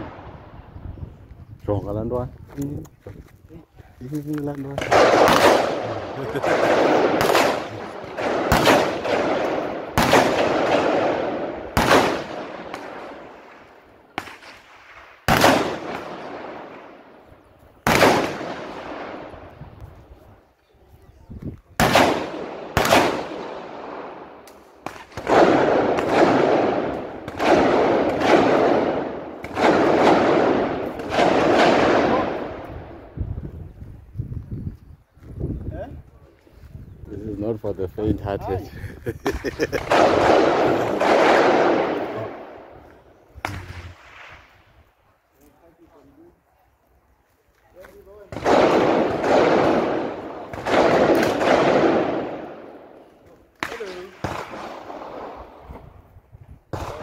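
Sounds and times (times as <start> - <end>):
echoing gunshots: 4.7 - 19.6, 21.8 - 33.2, 39.6 - 44.7, 48.3 - 55.8, 56.7 - 57.0.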